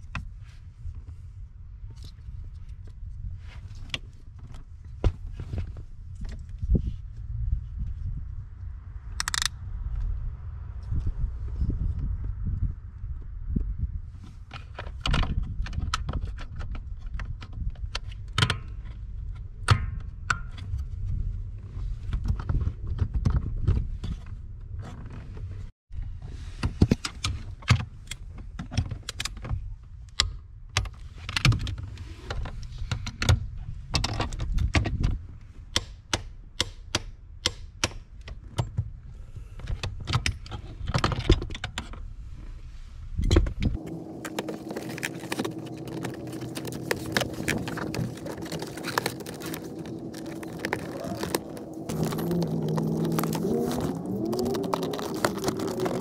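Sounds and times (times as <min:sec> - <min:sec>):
low steady rumble: 0:43.5 - 0:56.0.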